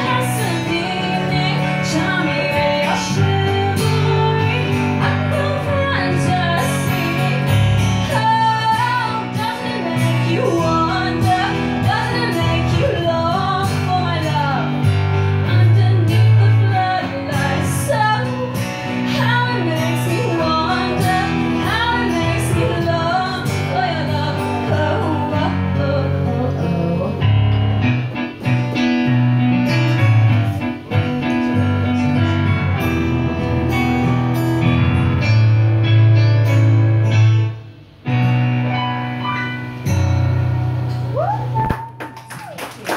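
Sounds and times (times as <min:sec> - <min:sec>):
woman singing: 0:00.0 - 0:27.5
piano chords: 0:00.0 - 0:41.6
acoustic guitar playing: 0:00.0 - 0:42.0.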